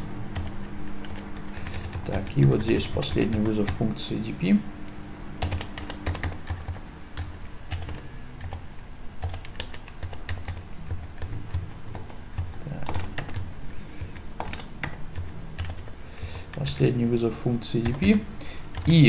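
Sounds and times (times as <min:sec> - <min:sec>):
keyboard typing clicks: 0:05.4 - 0:08.6, 0:09.2 - 0:15.9.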